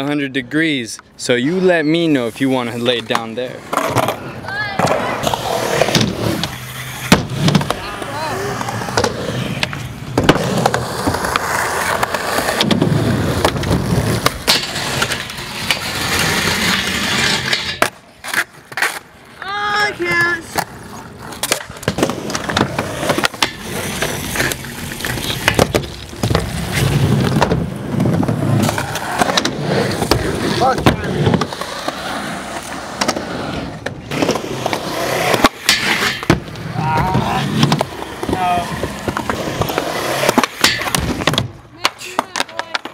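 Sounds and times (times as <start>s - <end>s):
skateboard wheels rolling on concrete: 0.0s - 42.9s
skateboard grinding on metal bar: 4.8s - 19.0s, 21.2s - 41.5s
skateboard clacks: 17.4s - 32.0s, 33.8s - 42.9s.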